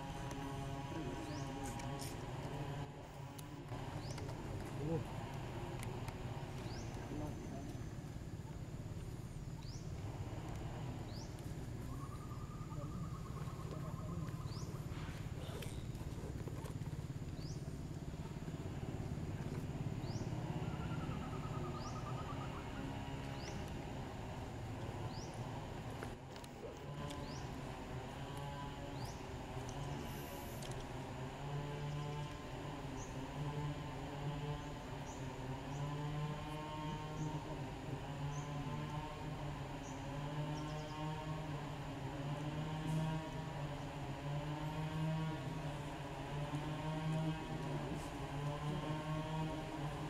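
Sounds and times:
steady low hum: 0.0 - 50.0
faint rising chirps: 10.8 - 16.0, 20.0 - 23.7.

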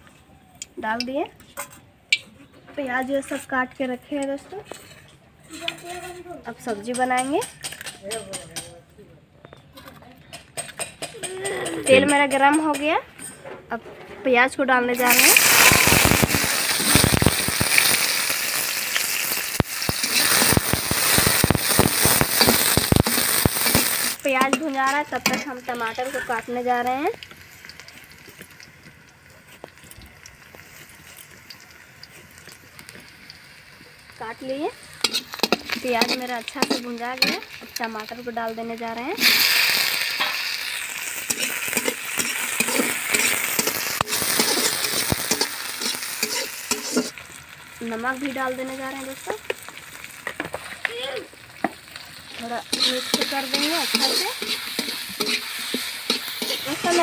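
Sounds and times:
onions sizzling in hot oil: 2.8 - 5.9, 6.5 - 7.9, 11.8 - 13.0, 14.3 - 57.0
spatula scraping and clinking on pan: 4.2 - 8.7, 22.4 - 26.3, 34.9 - 38.1, 40.2 - 47.2, 52.4 - 57.0.

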